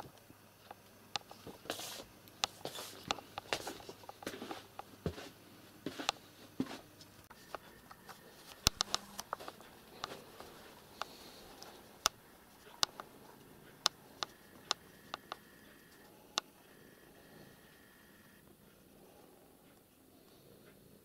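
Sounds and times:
footsteps: 0:01.4 - 0:11.9.

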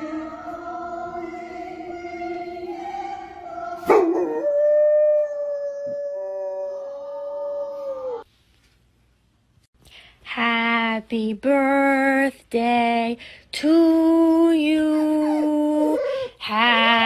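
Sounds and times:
choir singing from television: 0:00.0 - 0:04.5
dog howling: 0:14.8 - 0:17.0.

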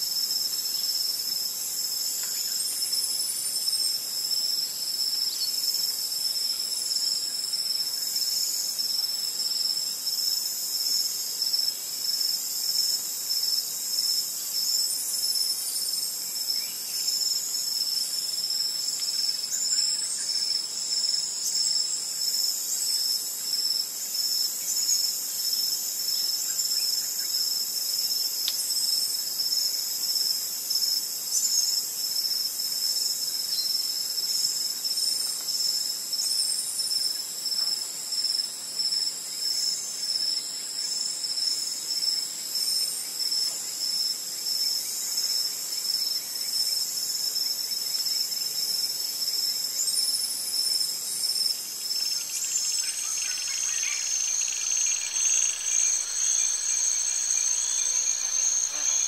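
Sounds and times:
insects buzzing and trilling: 0:00.0 - 0:59.0
faint high whistled calls: 0:49.6 - 0:59.0.

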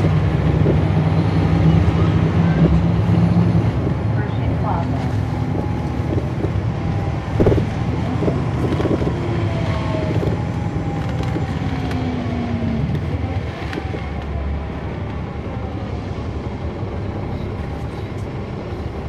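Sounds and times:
bus diesel engine droning: 0:00.0 - 0:19.0.

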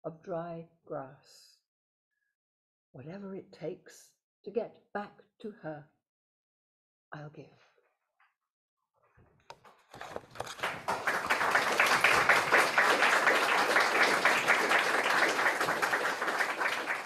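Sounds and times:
audience applauding: 0:09.9 - 0:17.0.

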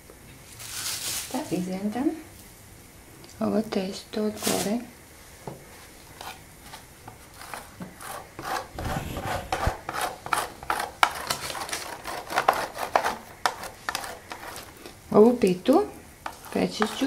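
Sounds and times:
dough rasping on a grater: 0:06.2 - 0:14.8, 0:16.2 - 0:17.0.

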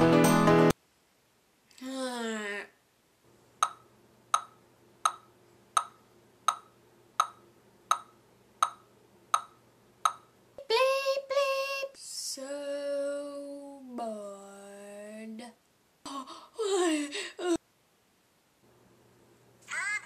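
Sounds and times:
metronome ticking: 0:03.6 - 0:10.3
girl singing held notes: 0:10.6 - 0:15.6.

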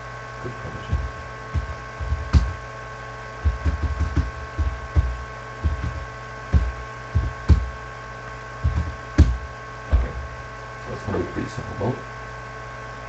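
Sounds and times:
high-pitched electrical whine: 0:00.0 - 0:13.0
low dull thumps: 0:00.8 - 0:02.7, 0:03.4 - 0:07.9, 0:08.6 - 0:10.7.

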